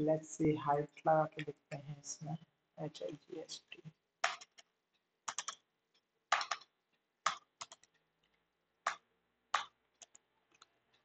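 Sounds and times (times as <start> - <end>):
keyboard keystrokes: 5.3 - 5.6, 6.3 - 7.9.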